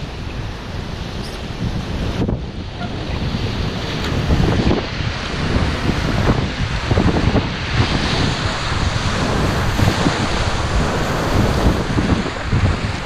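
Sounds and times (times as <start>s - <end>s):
rapids rushing and splashing: 0.0s - 13.0s
wind buffeting microphone: 0.0s - 13.0s.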